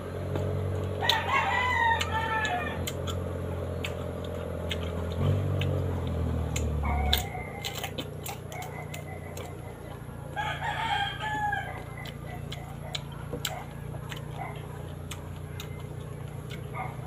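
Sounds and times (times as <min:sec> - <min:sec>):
steady low hum: 0:00.0 - 0:17.0
crunching bites of mango: 0:00.2 - 0:17.0
rooster crowing: 0:01.0 - 0:03.0, 0:08.6 - 0:12.8.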